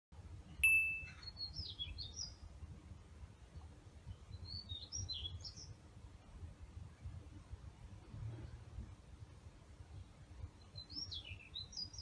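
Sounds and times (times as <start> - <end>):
short high ringing tone: 0.6 - 1.2
steady low rumble: 5.8 - 10.6.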